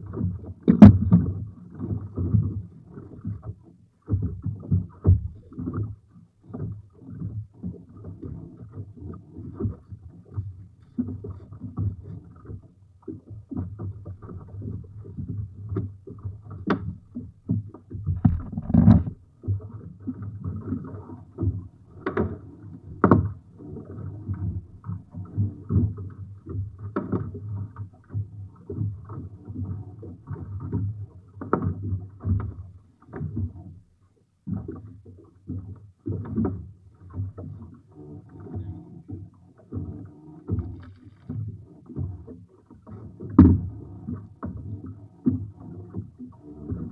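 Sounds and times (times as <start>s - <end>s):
knocks and thumps from net and boat: 0.0s - 33.8s, 34.4s - 46.9s
choppy water against hull: 0.0s - 46.9s
wind rumbling: 18.2s - 19.2s.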